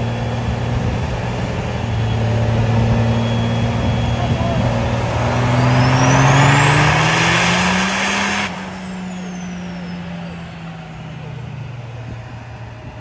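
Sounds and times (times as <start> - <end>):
rushing intake noise: 0.0 - 12.4
diesel engine revving: 0.0 - 13.0
turbo whistle: 1.7 - 10.8.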